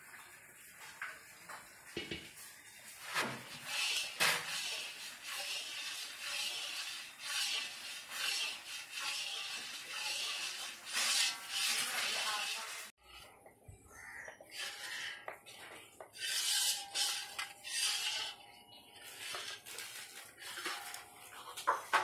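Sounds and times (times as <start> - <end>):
metal ladle scraping pan: 3.0 - 13.0, 14.5 - 15.2, 16.2 - 21.0.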